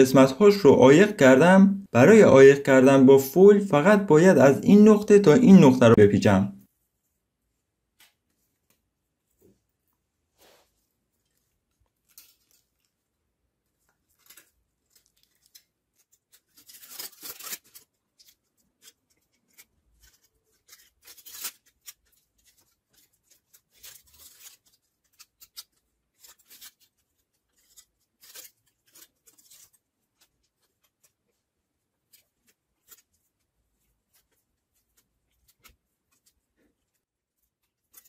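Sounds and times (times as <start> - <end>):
aluminium foil crinkling: 11.2 - 13.1, 13.7 - 38.0.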